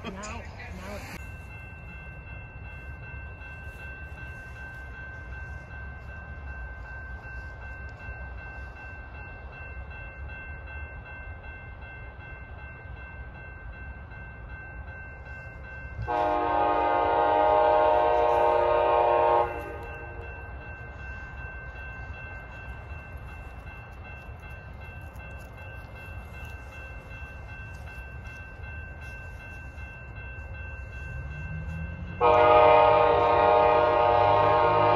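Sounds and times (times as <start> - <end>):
distant locomotive air horn: 16.0 - 20.3, 32.0 - 34.9.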